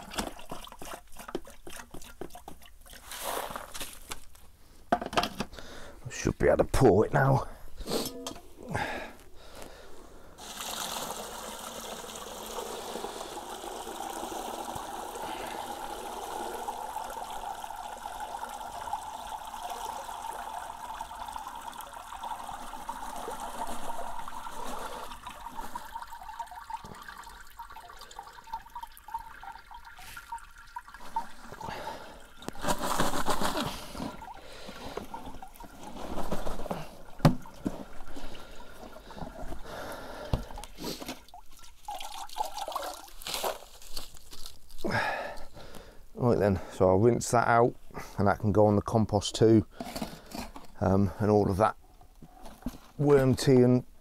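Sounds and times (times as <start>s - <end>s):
liquid pouring into bucket: 0.0s - 3.9s, 10.4s - 45.9s
liquid trickling through sieve: 0.0s - 4.0s, 10.4s - 45.5s.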